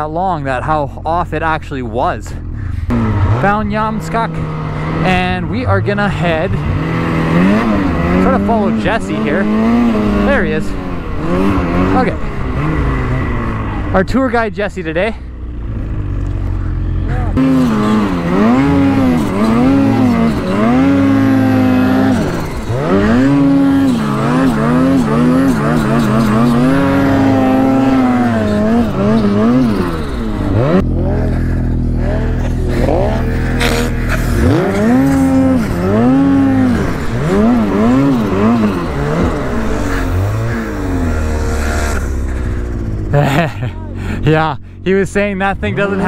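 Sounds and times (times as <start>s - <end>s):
snowmobile engine revving: 0.0s - 46.0s.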